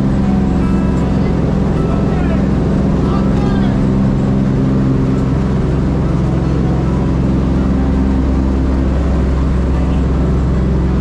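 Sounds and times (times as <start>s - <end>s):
piston engines droning in flight: 0.0s - 11.0s.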